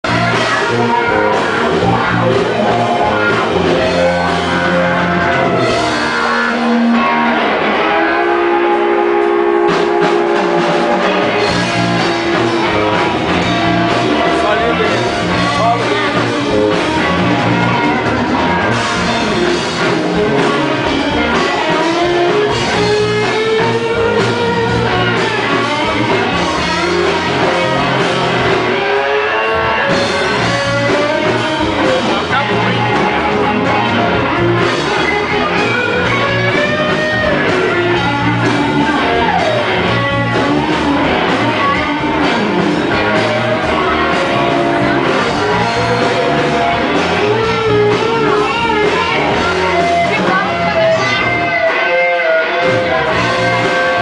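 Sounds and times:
blues band playing: 0:00.0 - 0:54.0
guitar solo with bent notes: 0:00.0 - 0:54.0.

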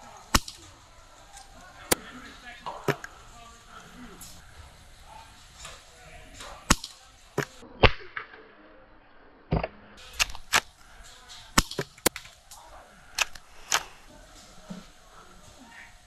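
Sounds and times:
airsoft gun shots: 0:00.3 - 0:00.7, 0:06.7 - 0:08.4.

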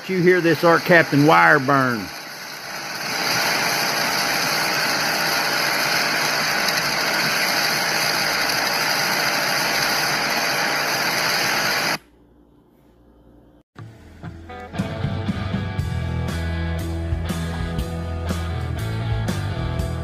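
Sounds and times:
welding arc crackling: 0:00.0 - 0:12.0.

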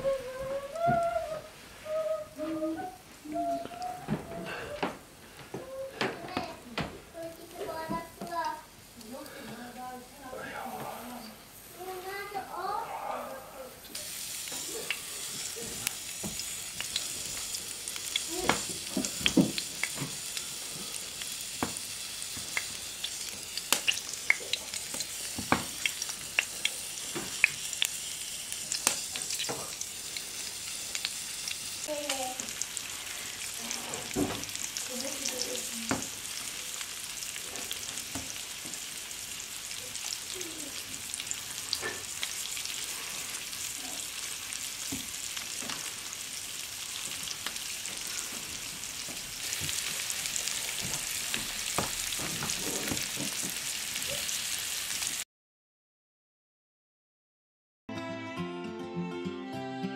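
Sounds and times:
fish sizzling in oil: 0:13.9 - 0:55.2
pops and clicks in pan: 0:16.2 - 0:20.2, 0:21.6 - 0:28.0, 0:28.6 - 0:30.3, 0:31.0 - 0:32.3.

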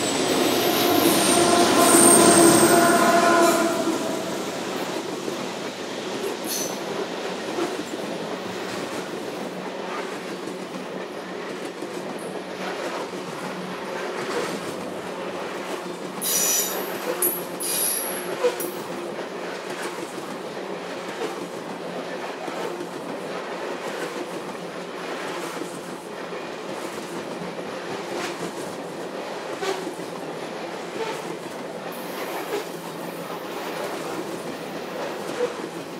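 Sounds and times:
train wheel squeals: 0:00.0 - 0:05.0, 0:06.2 - 0:06.9, 0:16.2 - 0:18.6
freight train cars rumbling: 0:00.0 - 0:19.9.

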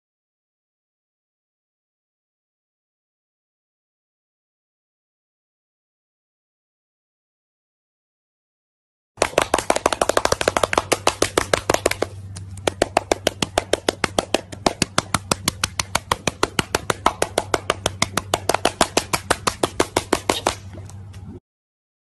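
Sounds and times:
seal slapping its belly: 0:09.2 - 0:20.7
faint low hum: 0:09.2 - 0:21.4.

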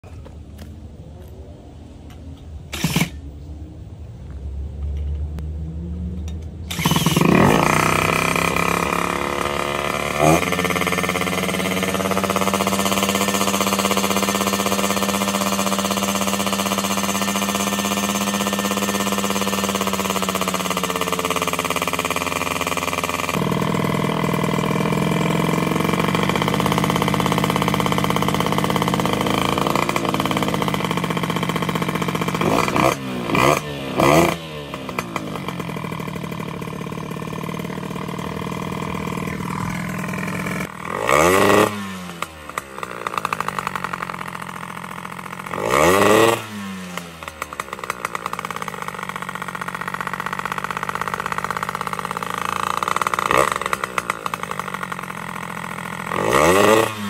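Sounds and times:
moped engine running: 0:02.1 - 0:57.0.

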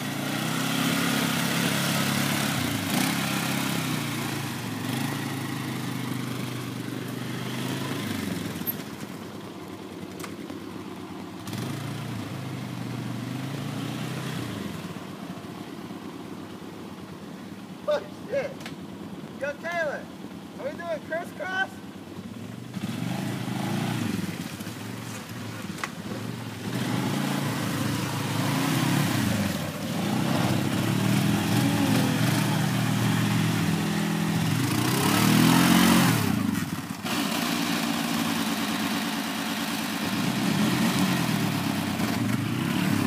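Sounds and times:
quad engines revving: 0:00.0 - 0:09.2, 0:11.4 - 0:15.1, 0:21.5 - 0:43.0.

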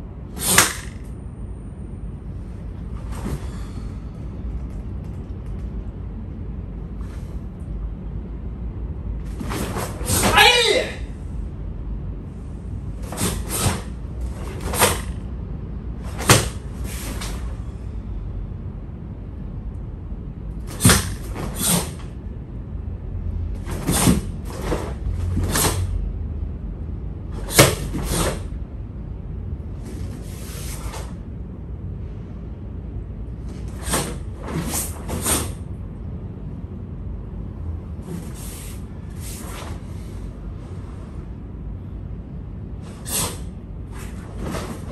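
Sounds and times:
steady low hum: 0:00.0 - 0:44.9
karate uniform snapping: 0:00.4 - 0:01.0.

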